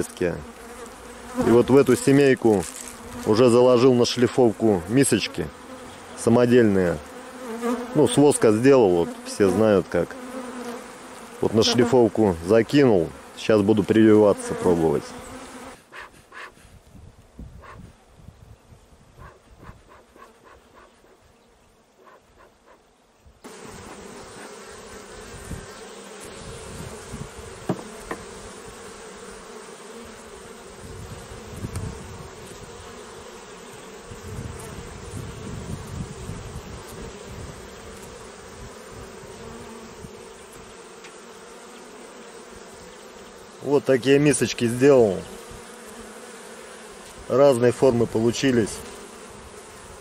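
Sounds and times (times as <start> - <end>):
bees buzzing: 0.0 - 16.6, 19.2 - 50.0
light wooden knocks: 27.6 - 28.2.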